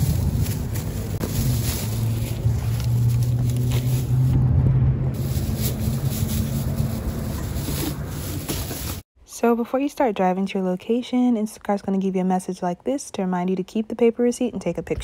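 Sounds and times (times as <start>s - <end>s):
shopping cart wheels rumbling: 5.2s - 9.0s.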